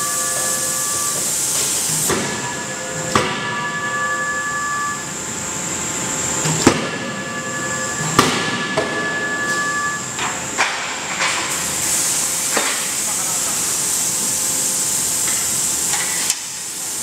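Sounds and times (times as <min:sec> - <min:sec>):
metallic ringing tone: 0:00.0 - 0:01.3, 0:02.4 - 0:05.3, 0:06.9 - 0:10.2
machinery hissing: 0:00.0 - 0:10.5, 0:11.5 - 0:15.9.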